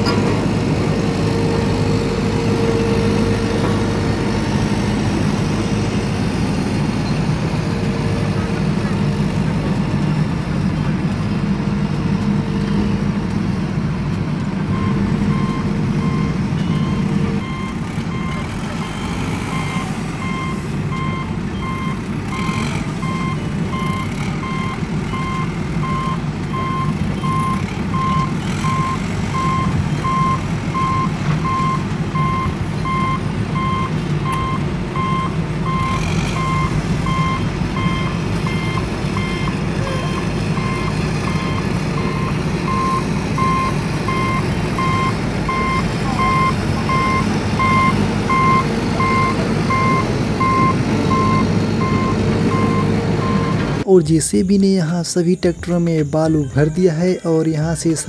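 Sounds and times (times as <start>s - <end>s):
low engine rumble: 0.0s - 58.0s
reversing alarm beeping: 14.7s - 53.7s.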